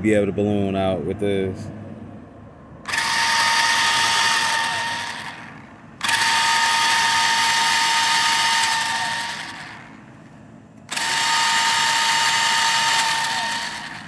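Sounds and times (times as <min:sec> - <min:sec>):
electric motor whining: 0:02.9 - 0:10.0, 0:10.9 - 0:14.0.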